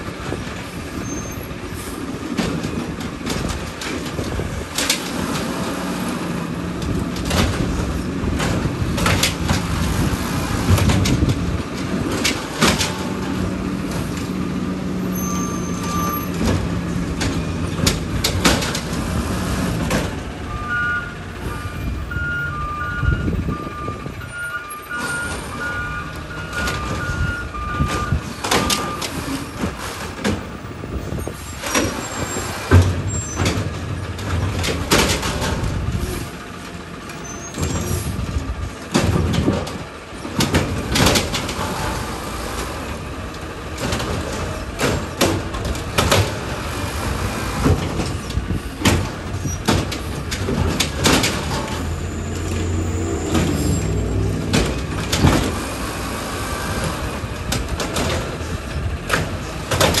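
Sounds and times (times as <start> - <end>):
garbage truck engine: 0.0 - 60.0
trash dropping into hopper: 2.1 - 14.8, 37.5 - 60.0
metallic clanks and bangs: 27.8 - 42.7, 43.6 - 60.0.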